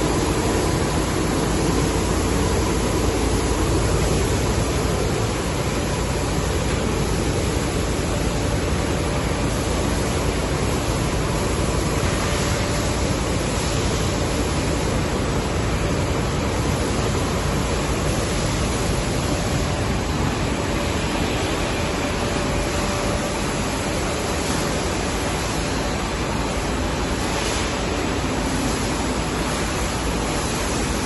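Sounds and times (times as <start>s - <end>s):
packaging machinery running: 0.0s - 12.0s
faint machine hum: 0.0s - 31.0s.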